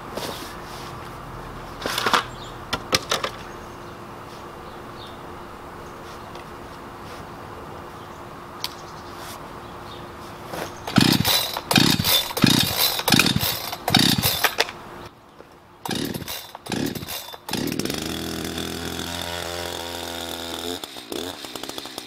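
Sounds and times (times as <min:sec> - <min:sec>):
chainsaw engine idling: 0:10.8 - 0:14.7, 0:15.9 - 0:22.0
chainsaw starter cord pulls: 0:10.8 - 0:14.8, 0:15.9 - 0:22.0.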